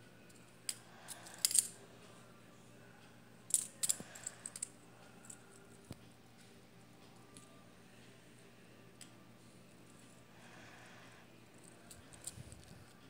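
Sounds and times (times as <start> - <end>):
metal fidget spinner clicking: 0.7 - 1.8.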